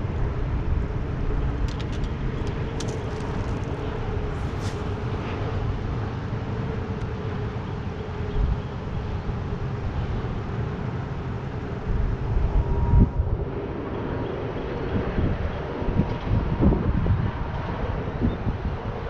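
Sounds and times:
wind on microphone: 0:11.6 - 0:19.0.

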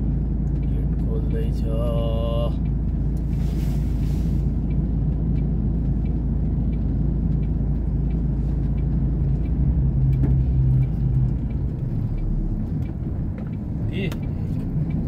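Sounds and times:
truck diesel engine humming: 0:00.0 - 0:15.0
faint ticking: 0:04.5 - 0:15.0.

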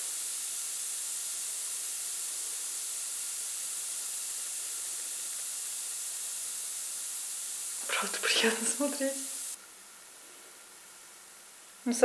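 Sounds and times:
solution fizzing: 0:00.1 - 0:09.6.

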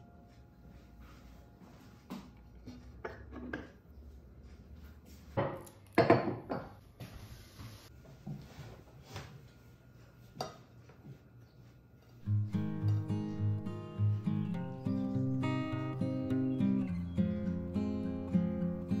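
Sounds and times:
ceramic dishes knocking and clinking: 0:06.0 - 0:06.8.

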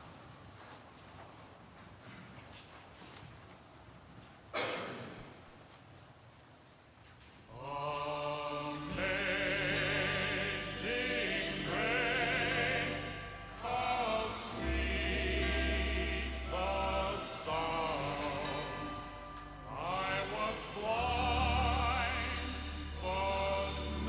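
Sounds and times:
voices singing a hymn: 0:07.5 - 0:24.0
sustained accompaniment: 0:07.6 - 0:24.0.

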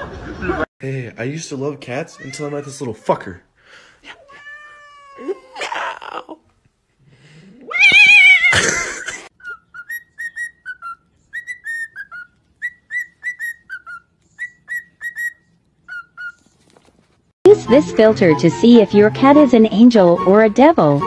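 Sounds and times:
loud wavering cry: 0:07.6 - 0:08.7
cockatiel whistling a tune: 0:09.4 - 0:16.4.

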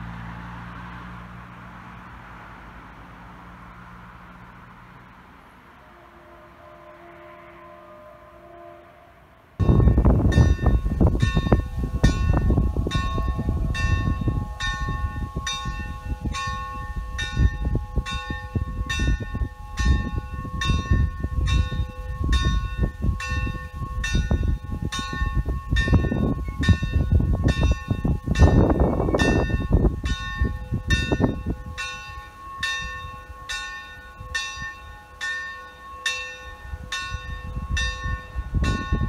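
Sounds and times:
heavy low rumble: 0:09.6 - 0:33.5
church bell ringing: 0:09.6 - 0:39.0.

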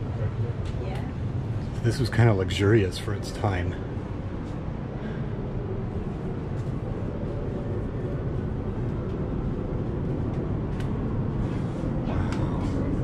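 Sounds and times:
low rumble of aircraft cabin: 0:00.0 - 0:13.0.

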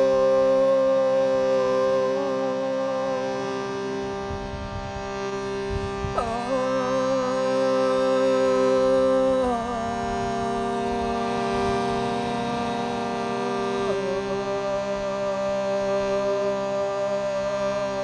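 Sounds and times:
shruti box reed drone: 0:00.0 - 0:18.0
woman singing: 0:06.2 - 0:16.7.

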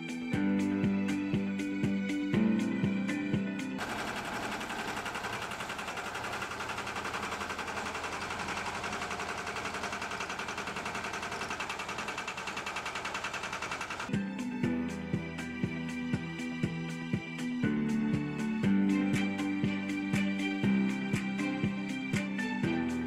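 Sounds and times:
loader engine clattering: 0:03.8 - 0:14.1.

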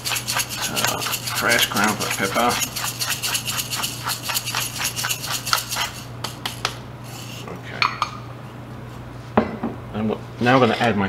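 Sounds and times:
pepper mill grinding: 0:00.0 - 0:06.7.

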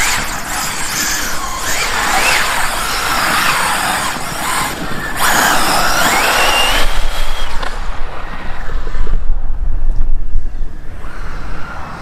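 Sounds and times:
electric motor whining: 0:00.0 - 0:07.8.

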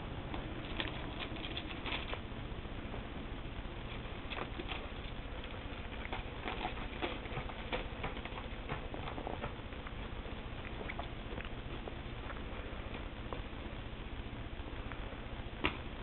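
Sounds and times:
paws scrabbling and tapping: 0:00.3 - 0:02.2, 0:03.9 - 0:13.4.

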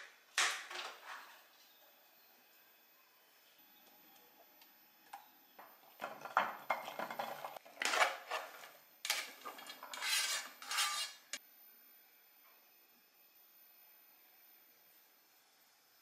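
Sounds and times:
kitchen utensils clinking on cookware: 0:06.0 - 0:11.4.

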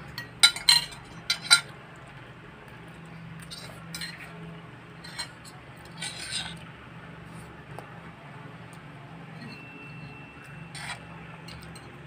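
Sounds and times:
steady low hum: 0:00.0 - 0:12.0
cutlery scraping and clinking on plates: 0:00.1 - 0:01.7, 0:03.4 - 0:04.4, 0:05.0 - 0:06.6, 0:09.3 - 0:12.0.

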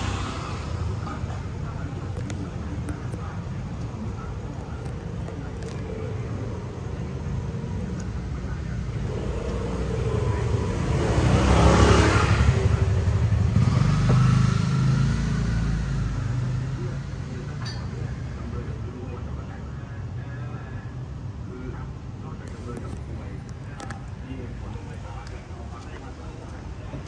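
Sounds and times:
vehicle passing by: 0:00.0 - 0:01.3, 0:09.0 - 0:17.4
low traffic rumble: 0:00.0 - 0:27.0.

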